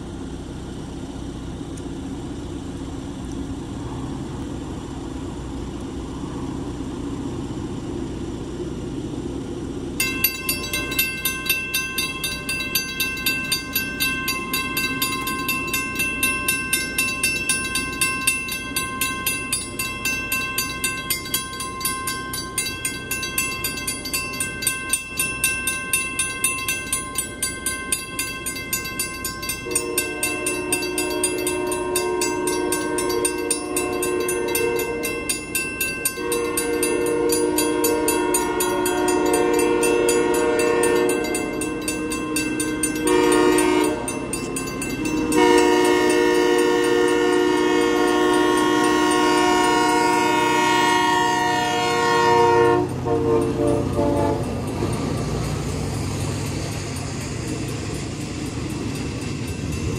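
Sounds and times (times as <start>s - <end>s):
railroad crossing bell ringing: 9.9s - 59.9s
train horn blast: 29.4s - 35.4s, 36.2s - 44.3s, 45.0s - 54.6s.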